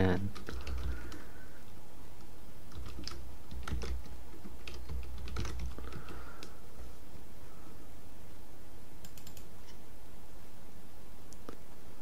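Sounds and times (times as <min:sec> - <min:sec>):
typing on computer keyboard: 0:00.3 - 0:01.2, 0:02.7 - 0:06.5, 0:09.0 - 0:09.5.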